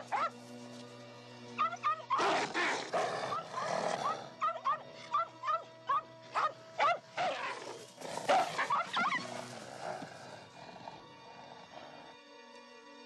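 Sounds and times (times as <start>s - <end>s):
animal yelping: 0.0s - 0.3s, 1.6s - 10.1s
orchestral film score: 0.0s - 13.0s.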